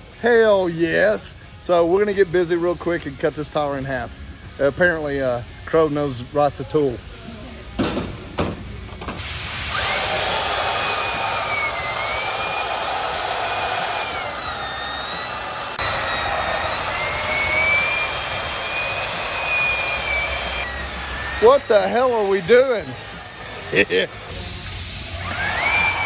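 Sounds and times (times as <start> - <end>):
band saw cutting rubber: 9.7 - 23.8.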